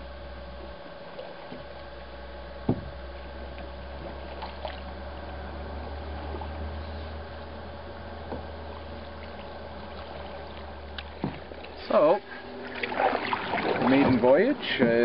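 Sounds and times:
steady low hum: 0:00.0 - 0:15.0
paddle splashes: 0:04.0 - 0:04.9, 0:08.8 - 0:15.0.

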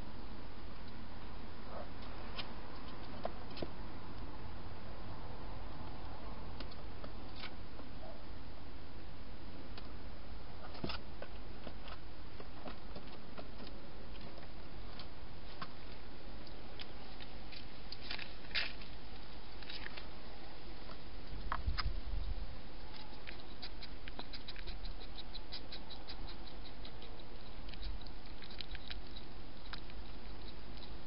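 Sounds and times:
steady low hum: 0:00.0 - 0:31.0
hedgehog clicks and rustles: 0:22.8 - 0:31.0.

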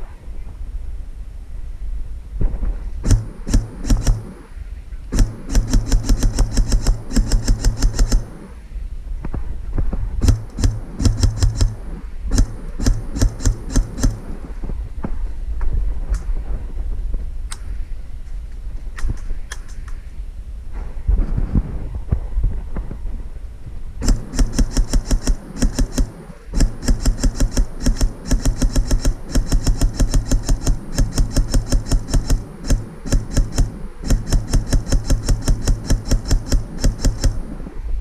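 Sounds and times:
airsoft rifle shots: 0:03.0 - 0:08.7, 0:09.9 - 0:14.8, 0:24.0 - 0:37.9.

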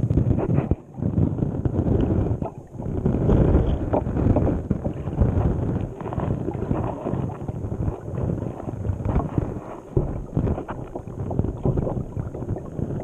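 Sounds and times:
muffled underwater rumbling: 0:00.0 - 0:13.0
water knocking against camera housing: 0:09.9 - 0:12.1.

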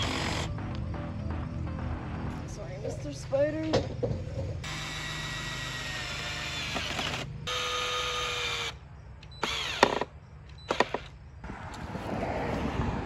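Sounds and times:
power drill motor whining: 0:00.0 - 0:00.5, 0:04.6 - 0:11.1.

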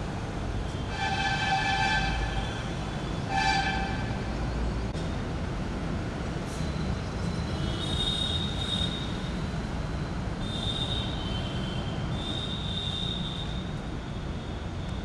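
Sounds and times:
drawn-out high squeals: 0:06.6 - 0:15.0.

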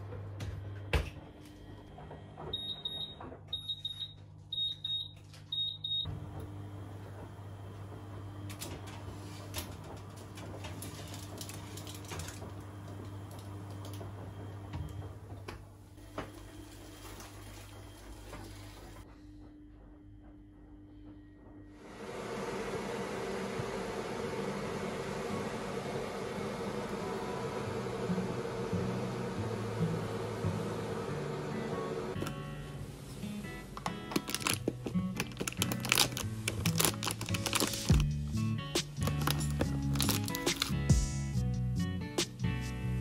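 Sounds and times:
oven beeper high beeps: 0:02.5 - 0:06.2.

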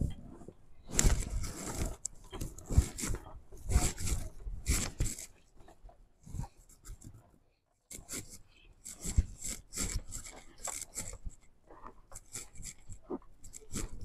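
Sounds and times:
body rustling and rubbing on seat: 0:00.0 - 0:07.2.

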